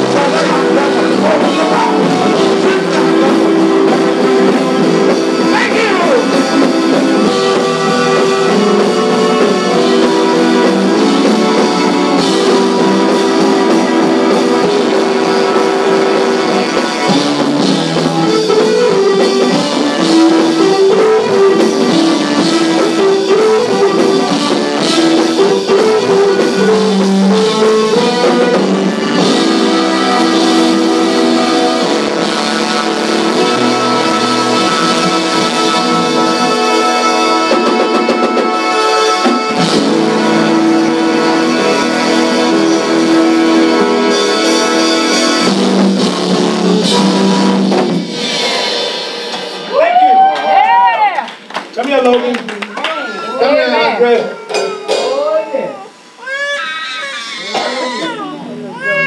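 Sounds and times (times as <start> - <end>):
live gospel band music: 0.0 - 59.0.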